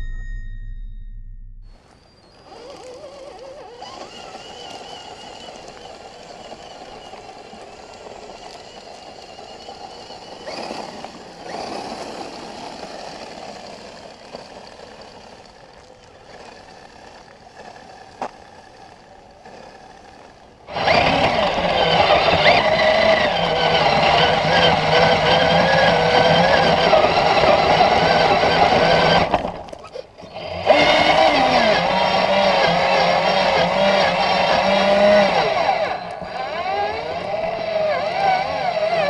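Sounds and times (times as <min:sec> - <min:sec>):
tyres on gravel: 0:01.7 - 0:39.0
rc car motor whine: 0:01.8 - 0:39.0.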